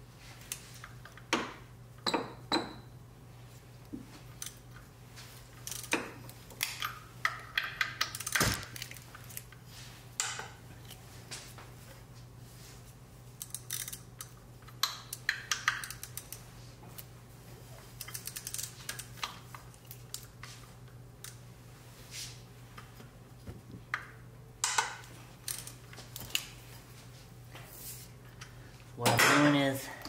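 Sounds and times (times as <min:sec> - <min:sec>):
socket ratchet clicking: 0:13.4 - 0:16.4.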